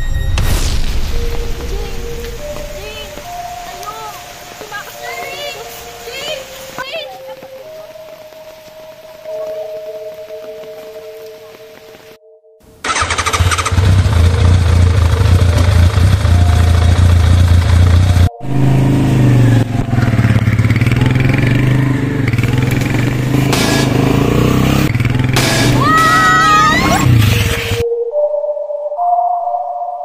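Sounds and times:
small motorcycle engine revving: 0:12.8 - 0:27.8.

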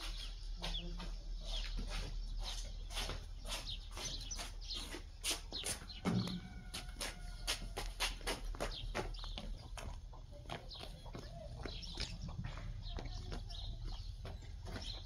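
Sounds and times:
birds chirping: 0:00.0 - 0:15.0
sharp knocks: 0:06.0 - 0:06.6.

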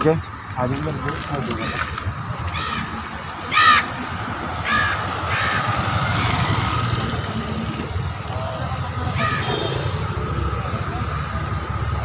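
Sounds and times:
crow cawing: 0:01.6 - 0:04.0, 0:04.6 - 0:06.4, 0:09.1 - 0:09.7.

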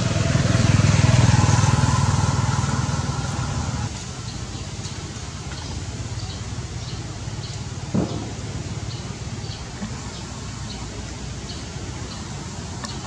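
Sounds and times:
vehicle engine running: 0:00.0 - 0:10.6.

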